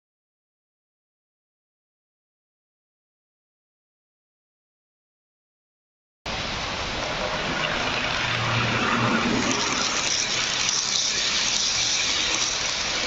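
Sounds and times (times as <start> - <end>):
model train wheels rumbling on rails: 6.4 - 13.0
low motor hum: 6.8 - 13.0.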